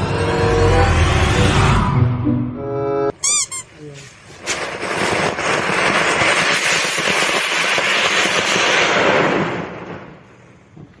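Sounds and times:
firework fizzing and crackling: 3.4 - 11.0.

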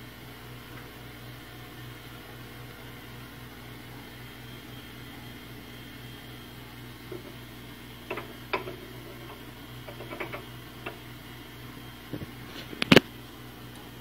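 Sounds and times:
steady low hum: 0.0 - 14.0
light clicks and knocks: 8.1 - 11.1.

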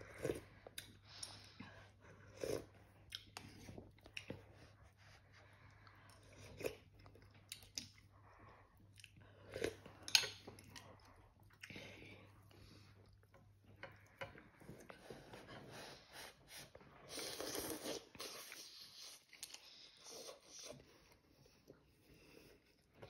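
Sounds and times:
person chewing: 5.7 - 8.2
person slurping broth: 16.2 - 20.8.

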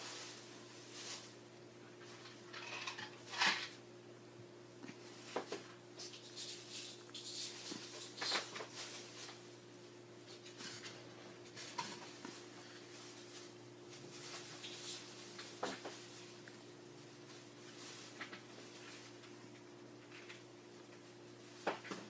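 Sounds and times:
fur rustling: 0.0 - 1.4
faint low hum: 0.0 - 22.0.

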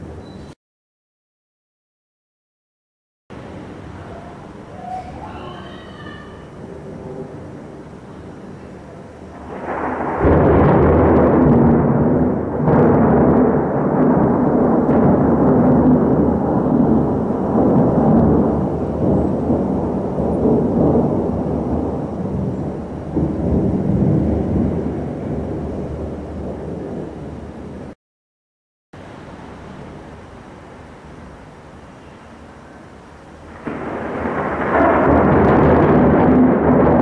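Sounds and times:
low thunder rumble: 3.3 - 28.0, 33.2 - 37.0
sharp thunder crack: 9.4 - 28.0, 33.5 - 37.0.

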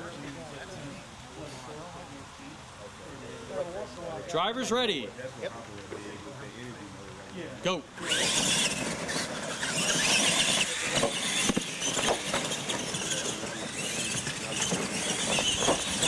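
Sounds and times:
rc truck motors whining: 8.0 - 16.0
trucks knocking on ramps: 8.7 - 16.0.

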